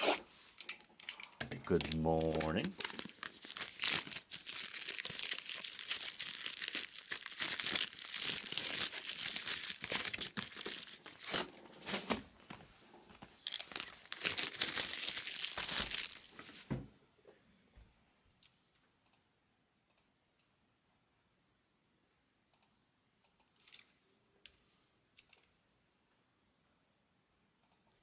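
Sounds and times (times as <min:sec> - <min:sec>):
plastic shrink wrap tearing and crinkling: 0:00.0 - 0:12.4, 0:13.2 - 0:16.5.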